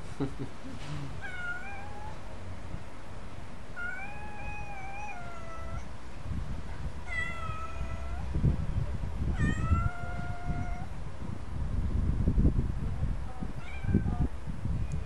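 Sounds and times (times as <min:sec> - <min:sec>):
cat meowing: 0:01.2 - 0:02.2, 0:03.8 - 0:05.9, 0:07.1 - 0:08.3, 0:09.4 - 0:10.9.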